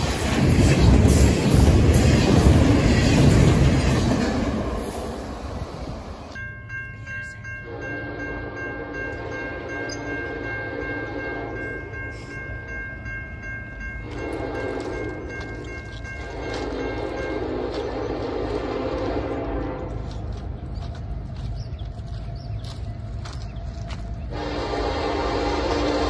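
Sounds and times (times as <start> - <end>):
crossing signal bell ringing: 0.0 - 18.3
locomotive horn blasts: 7.6 - 11.9, 14.0 - 15.3, 16.3 - 20.4, 24.3 - 26.0.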